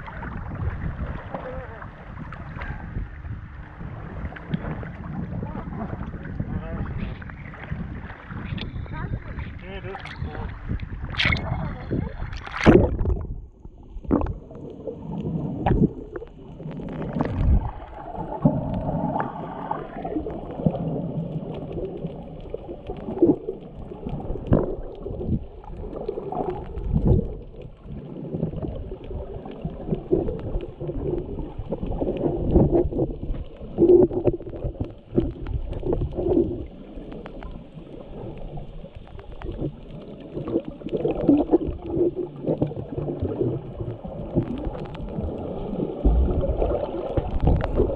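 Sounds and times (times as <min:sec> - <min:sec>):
muffled water sloshing and gurgling: 0:00.0 - 0:47.9
sharp splashes: 0:11.0 - 0:13.2.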